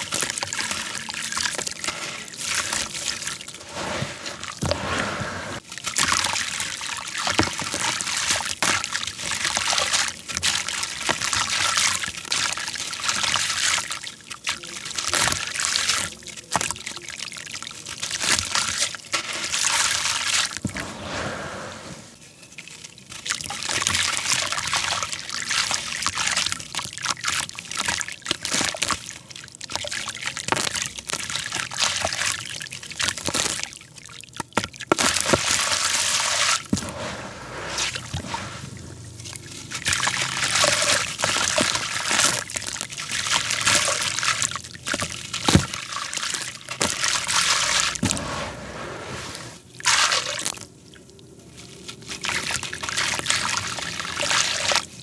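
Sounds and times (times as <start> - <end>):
hands swishing through wet sludge: 0.0 - 14.0, 18.1 - 22.2, 34.9 - 50.6.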